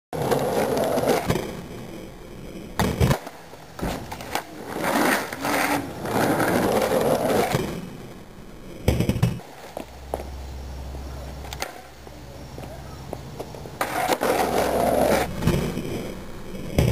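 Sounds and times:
skateboard wheels rolling on asphalt: 0.2s - 16.9s
skateboard clacks: 2.6s - 10.3s, 11.4s - 16.9s.

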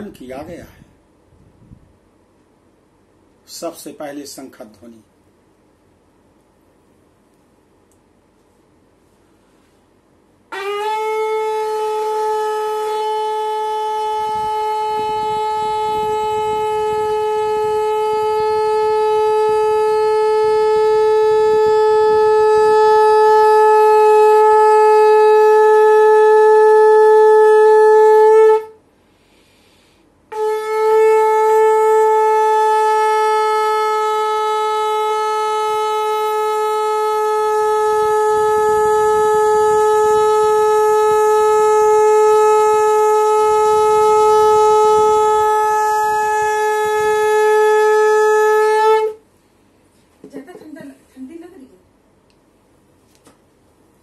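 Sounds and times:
conch shell blasts: 10.5s - 28.8s, 30.3s - 49.2s.

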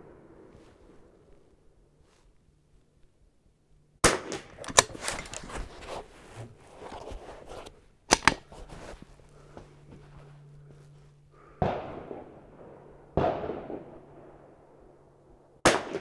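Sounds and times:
rifle shots: 4.0s - 5.4s, 11.6s - 14.4s, 15.6s - 16.0s.

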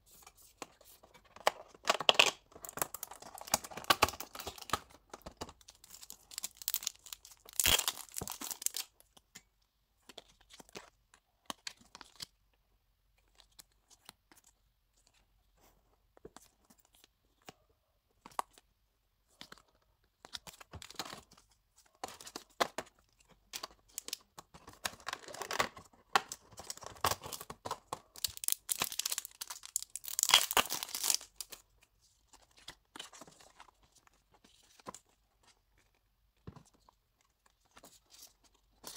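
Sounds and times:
packaging crinkling: 5.6s - 8.9s, 25.1s - 31.6s.

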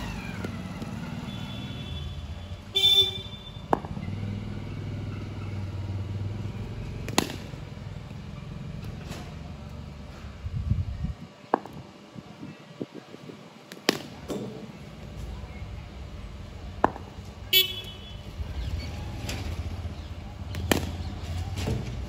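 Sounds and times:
cricket ball knocking on bat: 3.6s - 4.0s, 11.5s - 11.8s, 16.8s - 17.1s.

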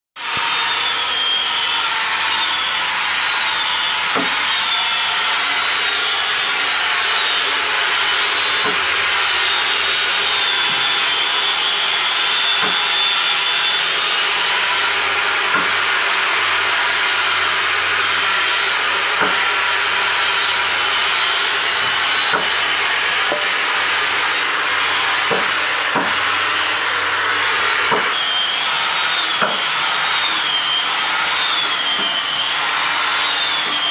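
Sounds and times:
woodworking machine hiss and whine: 0.2s - 33.9s.

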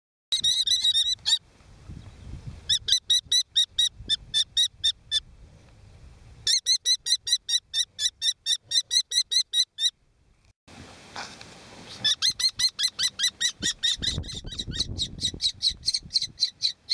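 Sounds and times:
kestrel nestlings calling: 12.0s - 16.9s.

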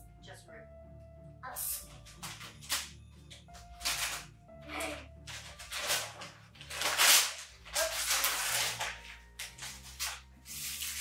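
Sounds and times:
wrapping paper ripping and rustling: 3.6s - 11.0s.

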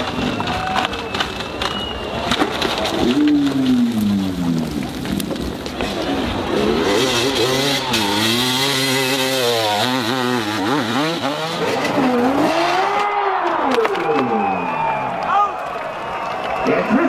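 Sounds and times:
motorcycle engine revving: 5.8s - 13.7s.

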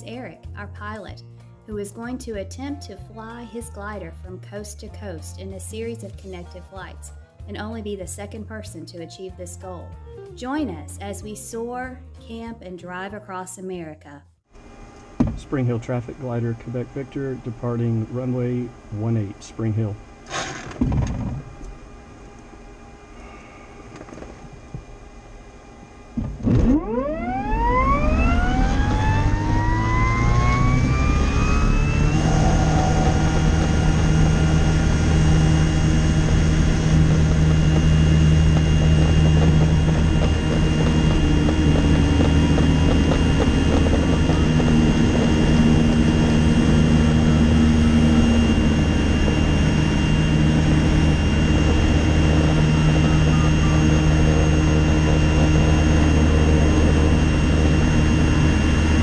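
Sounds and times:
glider motor whining: 19.7s - 59.0s.

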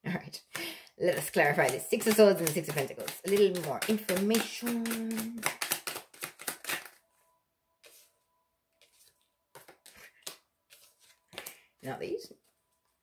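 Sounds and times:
cards being shuffled: 1.1s - 7.0s, 8.8s - 11.7s.

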